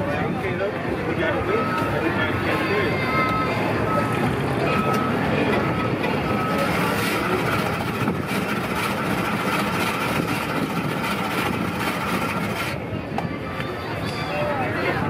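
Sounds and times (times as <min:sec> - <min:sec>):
ice shaving machine whirring: 0:04.7 - 0:12.8.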